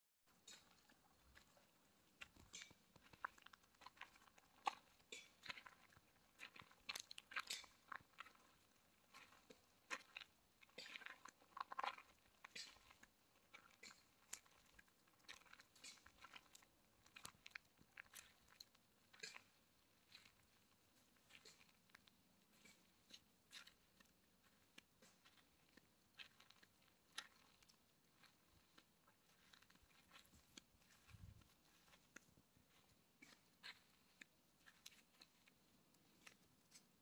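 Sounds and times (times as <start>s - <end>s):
footsteps crunching on gravel: 13.7s - 37.0s.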